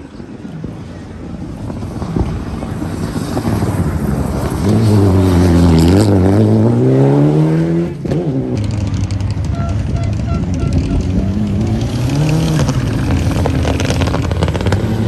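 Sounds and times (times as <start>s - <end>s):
rally car engine passing: 1.4s - 15.0s.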